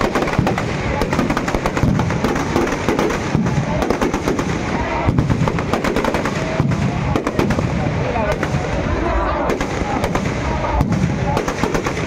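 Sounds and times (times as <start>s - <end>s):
firecrackers banging and crackling: 0.0s - 12.0s.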